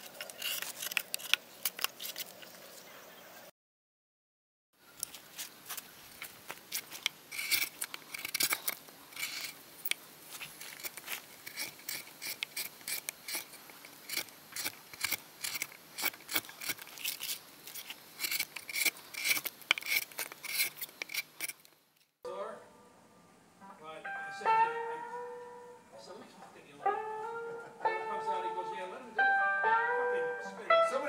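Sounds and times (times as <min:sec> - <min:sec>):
gouge cutting wood shavings: 0:05.1 - 0:09.6, 0:10.3 - 0:21.6.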